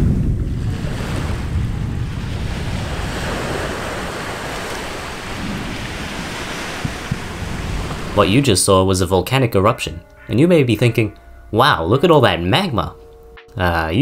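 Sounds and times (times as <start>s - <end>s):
volcanic blast rumble: 0.0s - 8.3s.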